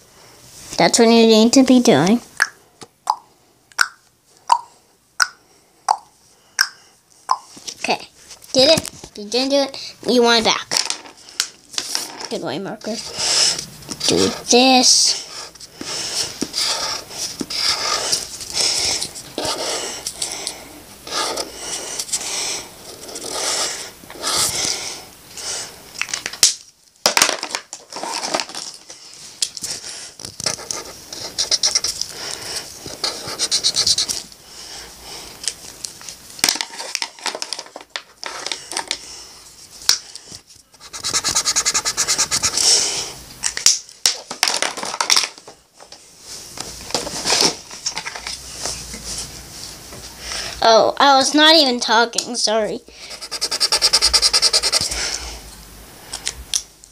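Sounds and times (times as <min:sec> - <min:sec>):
marker scratching on paper: 0:12.9 - 0:20.5, 0:21.1 - 0:24.9, 0:30.4 - 0:34.3, 0:40.8 - 0:43.0, 0:53.0 - 0:55.1.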